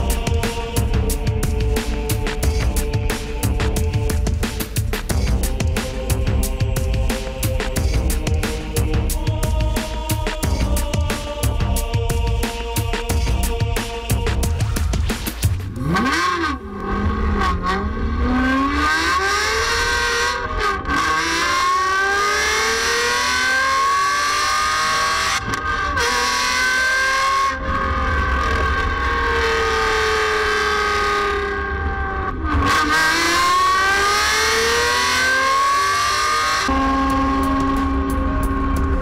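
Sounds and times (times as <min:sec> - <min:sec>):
car engine accelerating: 0:13.8 - 0:39.0.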